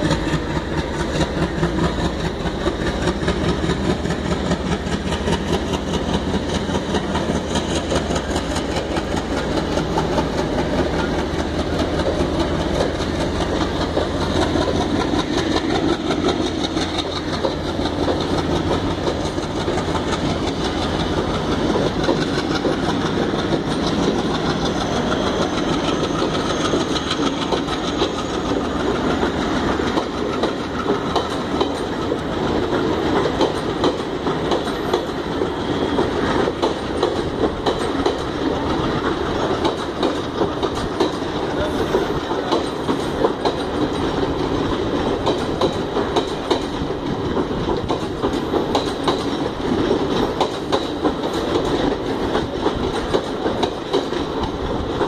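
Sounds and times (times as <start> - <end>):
steady train rumble: 0.0 - 55.0
train wheels clattering over rail joints: 0.0 - 55.0.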